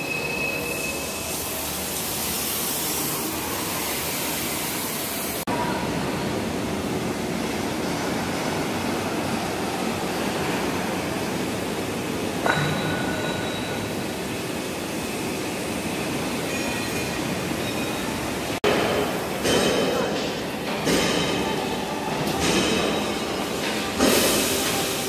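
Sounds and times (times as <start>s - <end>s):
faint high metallic rings: 12.4s - 13.9s, 16.4s - 18.2s.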